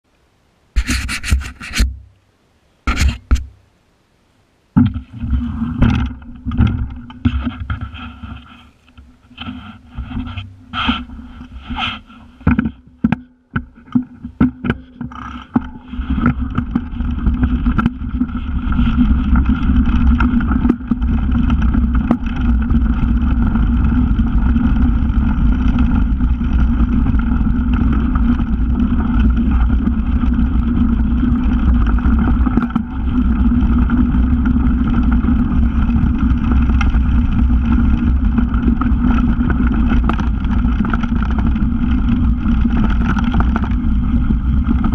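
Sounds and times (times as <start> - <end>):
tyres rumbling over dirt: 4.8 - 44.9
wind rushing on microphone: 14.2 - 44.9
bike clicks and knocks: 27.2 - 44.9.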